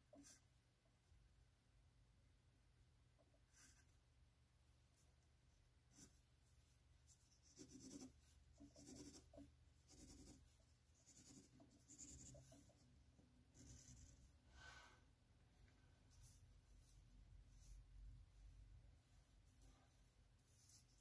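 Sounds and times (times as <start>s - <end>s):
pencil scratching on paper: 0.0s - 0.5s, 3.4s - 4.0s, 5.9s - 6.3s, 7.1s - 14.4s, 20.4s - 21.0s.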